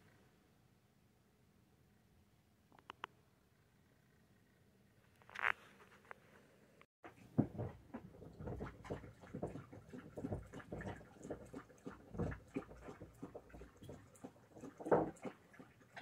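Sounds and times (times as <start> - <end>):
pet drinking water: 7.6 - 16.0.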